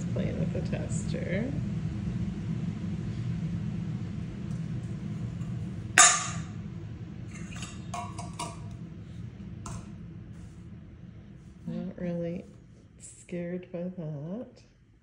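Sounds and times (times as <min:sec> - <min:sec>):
metal bowl clanging: 0:06.0 - 0:06.6, 0:07.3 - 0:08.8.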